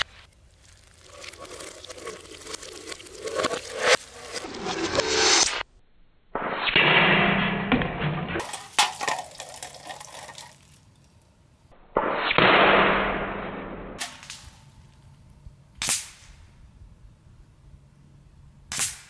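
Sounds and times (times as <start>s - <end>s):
metal target knocked over: 6.4s - 10.0s
air rifle shot: 12.0s - 14.6s, 15.8s - 16.5s, 18.7s - 19.0s.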